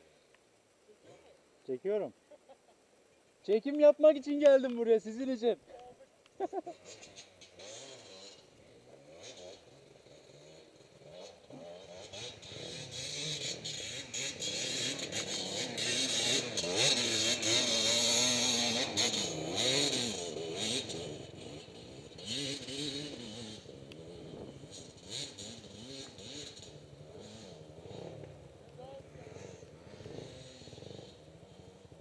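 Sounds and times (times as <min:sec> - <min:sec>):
dirt bike engine revving: 0:06.4 - 0:32.0.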